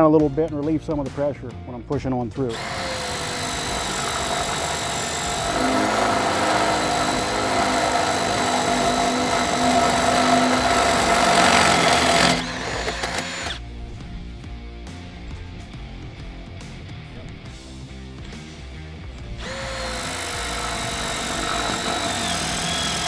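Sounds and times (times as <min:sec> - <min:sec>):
background music: 0:00.0 - 0:23.0
drill grinding through fiberglass: 0:02.5 - 0:13.6, 0:19.4 - 0:23.0.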